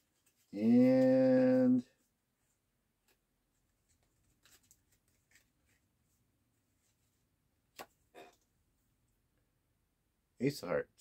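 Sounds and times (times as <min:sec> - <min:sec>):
playing cards ticking and rustling: 0:03.0 - 0:05.8.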